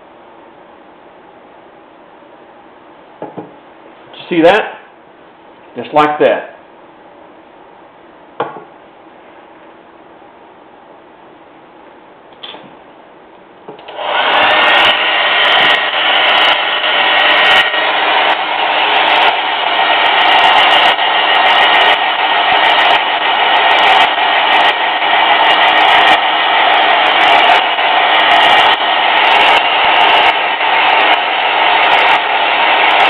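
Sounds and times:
hair dryer blowing: 13.8 - 33.0.

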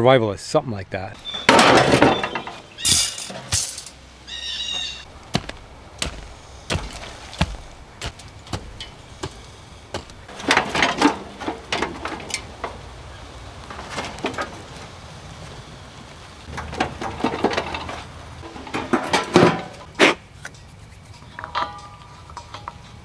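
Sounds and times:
short metallic squeal: 1.2 - 3.3
metal barbecue clanking and rattling: 1.2 - 4.2, 5.1 - 15.4, 16.4 - 20.2, 21.4 - 23.0.

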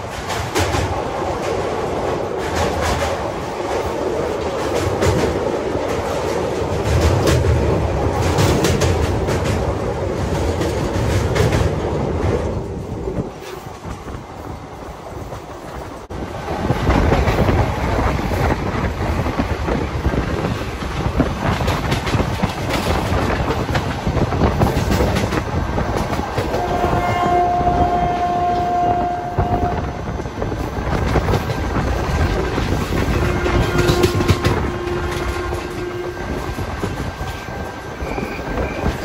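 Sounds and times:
train wheels clattering over rails: 0.0 - 39.0
train horn steady note: 26.6 - 29.9, 33.2 - 36.5.

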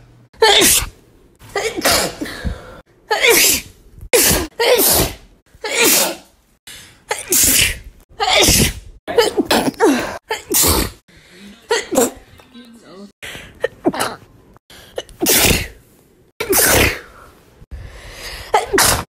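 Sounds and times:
woman sneezing: 0.4 - 0.9, 3.1 - 6.3, 7.1 - 11.0, 11.7 - 12.2, 15.1 - 15.8, 16.4 - 17.1, 18.6 - 19.0.

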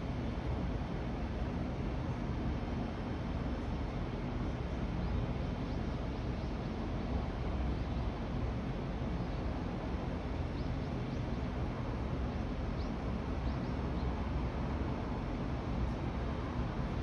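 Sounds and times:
low city rumble: 0.0 - 17.0
small birds chirping: 10.4 - 11.5, 12.2 - 14.2.

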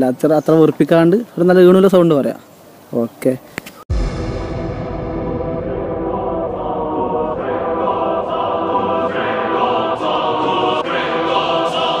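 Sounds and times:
electronic music with choir chords: 3.9 - 12.0.

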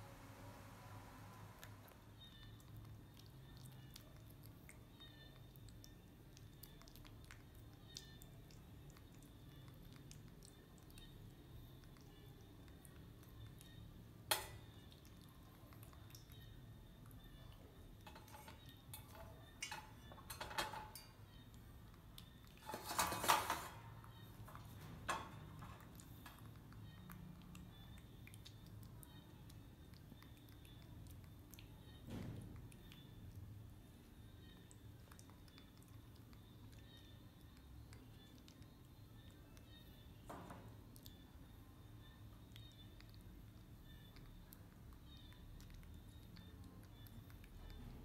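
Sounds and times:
metal bowl and cage clinking: 18.0 - 21.2, 22.6 - 24.0.

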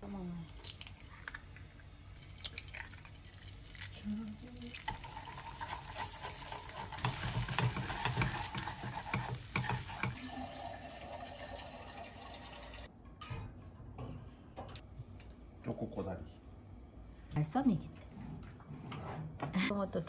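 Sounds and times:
eggs sizzling in a frying pan: 0.5 - 12.9
chopsticks scraping a pan: 5.6 - 10.2.

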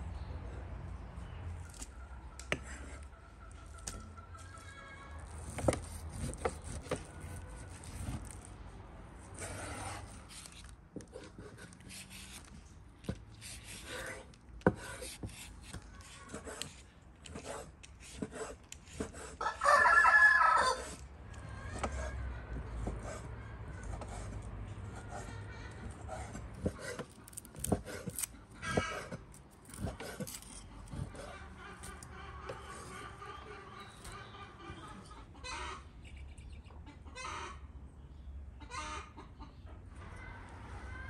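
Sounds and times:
peeler scraping a potato: 5.1 - 8.6, 9.2 - 22.2, 22.8 - 33.2
knife cutting meat on wooden board: 5.4 - 8.4, 9.4 - 21.0, 26.1 - 33.0
rooster crowing: 19.4 - 21.0.

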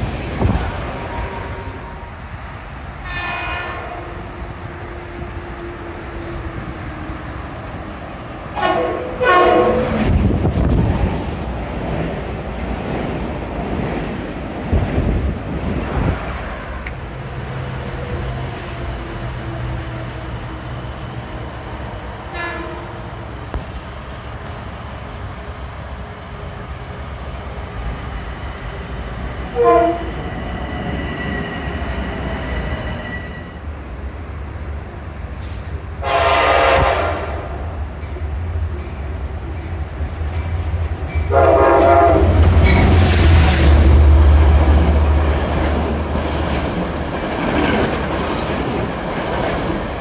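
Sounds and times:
rumble of trains: 0.0 - 50.0
train horn blasts: 3.0 - 5.9, 8.6 - 10.1, 22.3 - 23.0, 29.6 - 30.2, 36.0 - 37.6, 41.3 - 42.8
wind buffeting microphone: 9.8 - 16.5.

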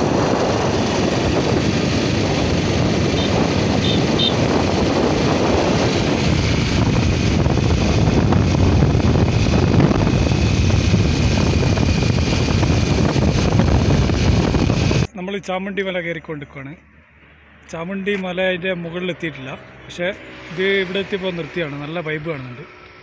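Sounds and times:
wind rushing over microphone: 0.0 - 15.1.

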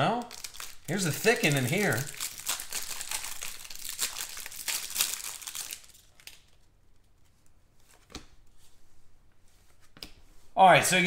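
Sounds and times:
plastic card sleeve crinkling: 0.1 - 8.4.

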